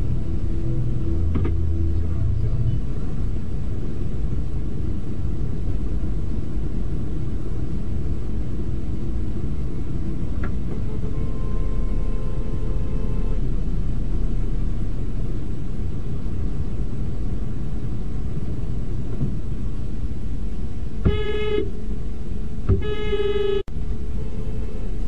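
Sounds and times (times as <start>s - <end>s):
idling traffic rumble: 0.0s - 25.0s
car horn honks: 10.7s - 13.5s, 21.0s - 21.8s, 22.7s - 25.0s.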